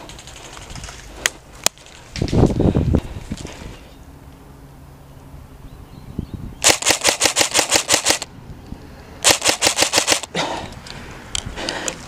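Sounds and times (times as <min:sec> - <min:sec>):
airsoft rifle firing rapid shots: 0:06.6 - 0:08.3, 0:09.2 - 0:10.3.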